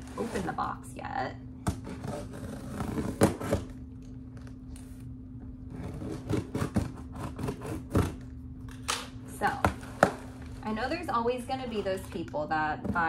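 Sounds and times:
cardboard rustling and scraping: 0.0 - 0.7.

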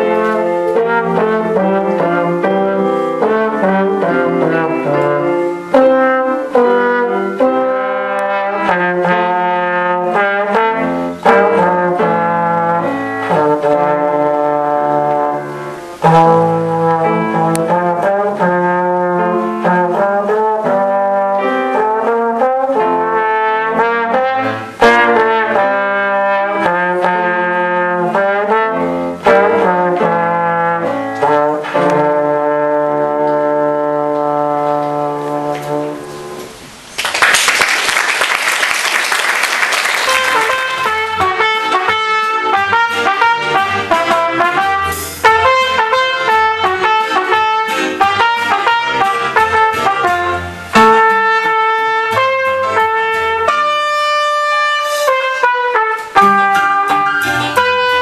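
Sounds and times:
brass ensemble playing: 0.0 - 58.0.

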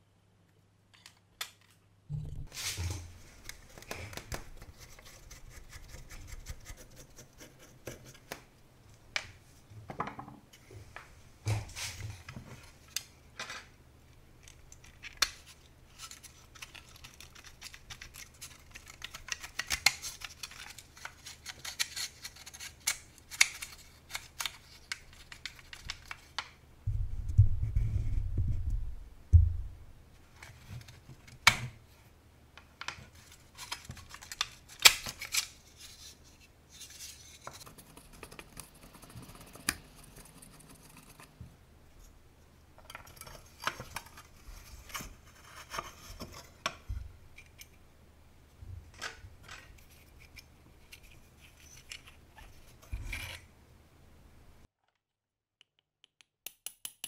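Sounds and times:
low rumble: 2.1 - 2.6, 26.9 - 30.0.

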